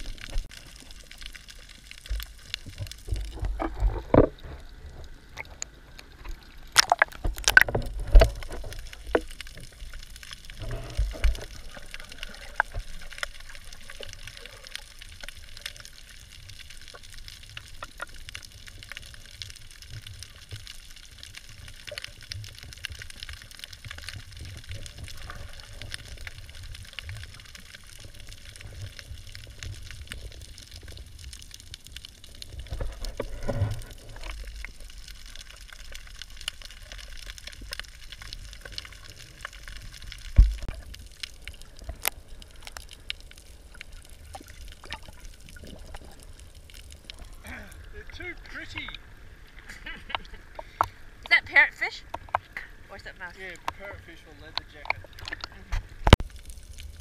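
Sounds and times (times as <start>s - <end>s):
underwater water rumble: 0.0s - 51.3s
water gurgling: 0.0s - 57.0s
water splashing thumps: 6.7s - 9.3s
faint clicks: 48.9s - 51.3s.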